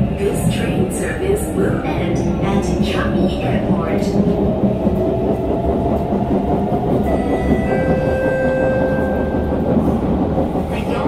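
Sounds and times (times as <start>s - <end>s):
train wheels rumbling on rail: 0.0s - 11.0s
train motor whine: 6.9s - 10.4s.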